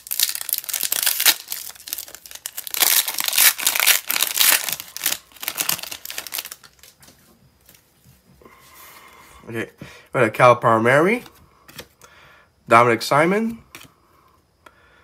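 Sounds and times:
foil wrapper tearing and crinkling: 0.0 - 7.0.

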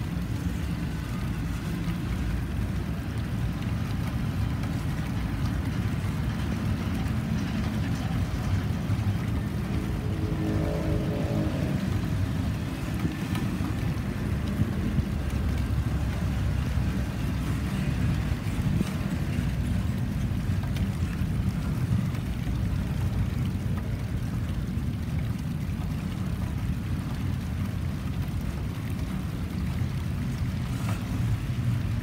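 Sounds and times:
train wheels rumbling on rail: 0.0 - 24.6.

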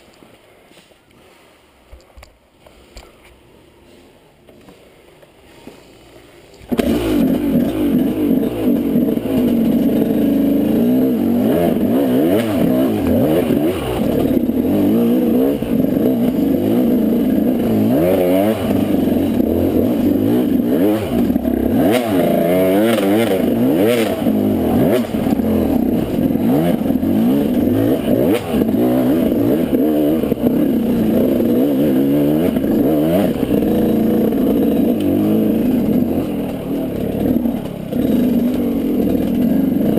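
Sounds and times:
dirt bike engine revving: 6.7 - 39.9
bike clattering over rough ground: 23.1 - 39.9.

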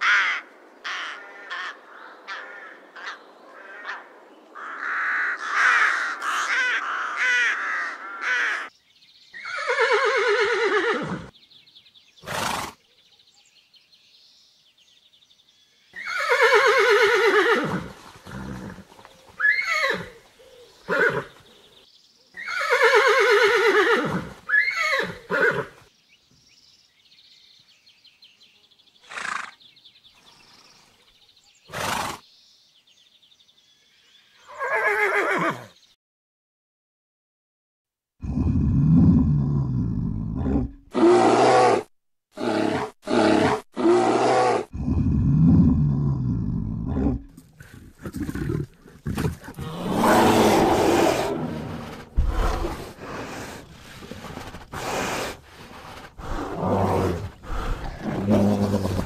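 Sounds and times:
crow cawing: 0.0 - 8.7
horse whinnying: 9.4 - 11.3, 12.2 - 12.8, 16.0 - 20.2, 20.9 - 21.4, 22.4 - 25.8, 31.7 - 32.2, 34.5 - 35.7, 46.9 - 59.0
horse blowing: 16.1 - 20.2, 38.2 - 59.0.

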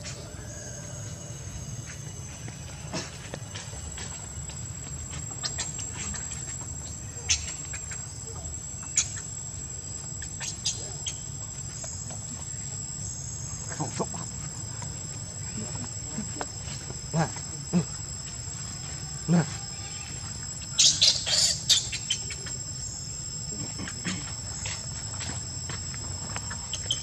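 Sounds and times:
insects droning: 0.0 - 27.0
high chirps: 19.8 - 25.1.

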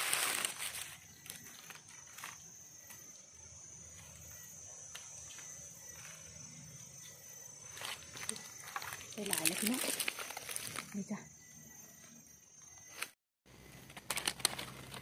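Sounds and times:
high-pitched insect drone: 0.0 - 13.2
mushroom handling clicks and rustles: 7.8 - 11.0.

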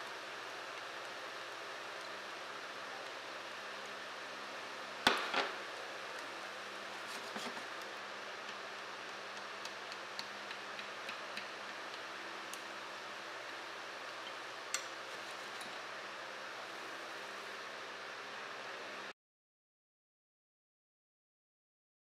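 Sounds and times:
soft frying hiss: 0.0 - 19.1
light ticks and taps: 8.4 - 12.7.

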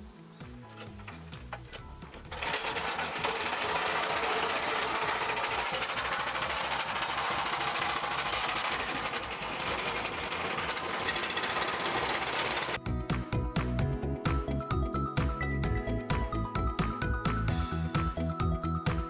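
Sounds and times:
starter cord being pulled: 0.6 - 12.8
small boat engine running: 2.2 - 12.8.

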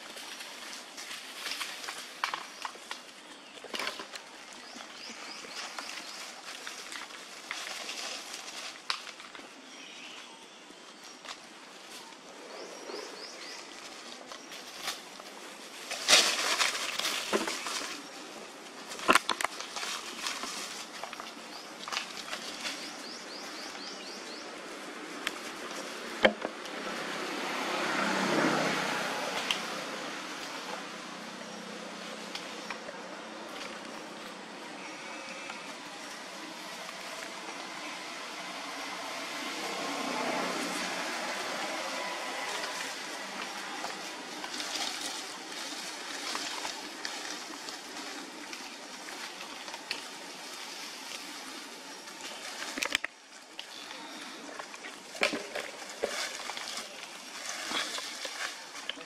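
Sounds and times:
dry leaves rustling and crackling: 0.0 - 59.0.

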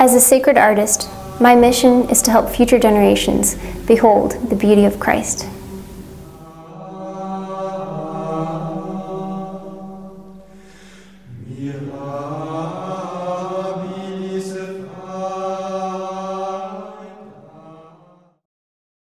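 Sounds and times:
slow chant-like singing: 0.8 - 4.5, 5.4 - 18.4.

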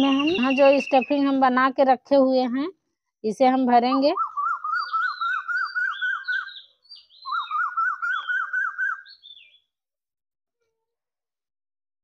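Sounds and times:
birds warbling: 0.0 - 1.3, 4.0 - 9.6
whistled bird calls: 0.0 - 1.4, 4.0 - 9.6.

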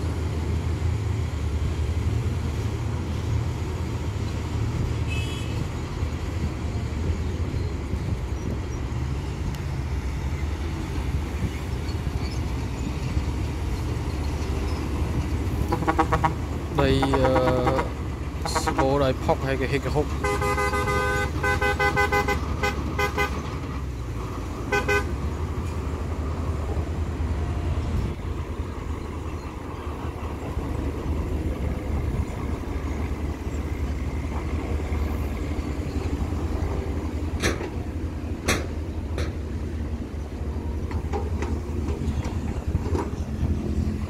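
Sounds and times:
heavy diesel engines running: 0.0 - 44.0
vehicle horn toots: 5.1 - 5.7, 15.7 - 16.4, 17.0 - 18.9, 20.2 - 23.4, 24.7 - 25.1.

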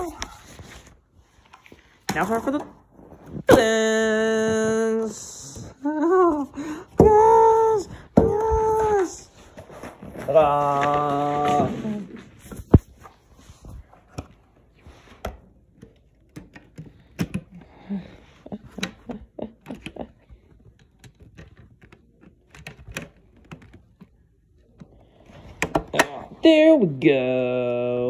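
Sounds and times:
hands handling objects: 0.0 - 17.6.

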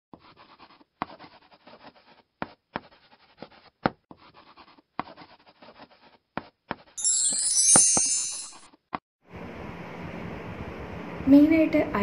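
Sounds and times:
scratchy writing strokes: 0.1 - 7.0.

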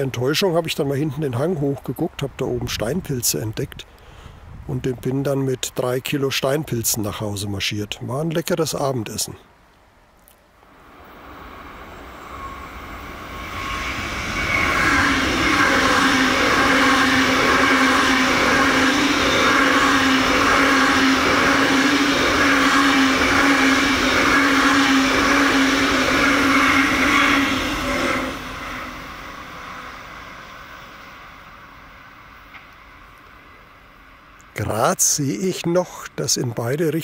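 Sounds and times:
electric train passing at speed: 10.6 - 36.3.

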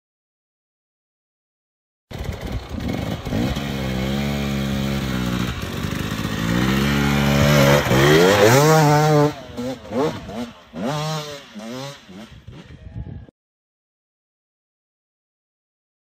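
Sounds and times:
motorcycle engine revving: 2.1 - 12.9.

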